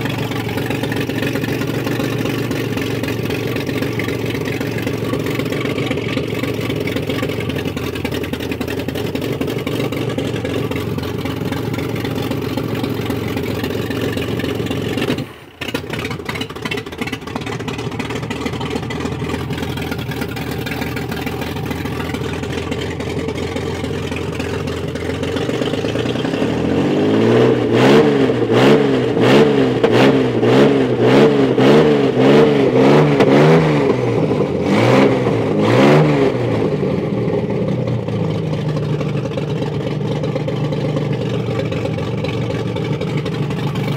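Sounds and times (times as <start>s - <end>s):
petrol engine idling: 0.0s - 26.7s, 37.0s - 43.9s
engine revving from throttle blips: 26.3s - 37.6s.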